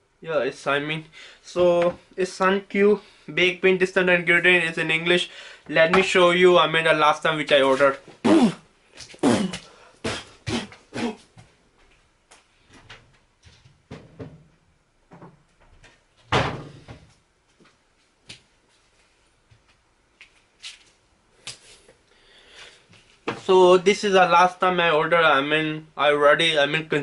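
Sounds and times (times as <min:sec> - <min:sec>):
cupboard door opening and shutting: 0:12.9 - 0:15.5, 0:16.2 - 0:17.1.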